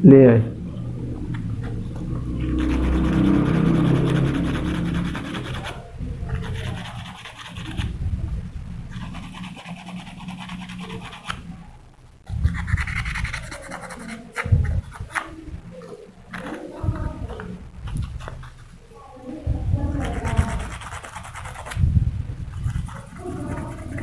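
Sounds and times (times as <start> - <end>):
sandpaper scratching: 2.4 - 8.0, 8.9 - 11.5, 12.3 - 15.4, 20.0 - 21.8, 22.5 - 24.0.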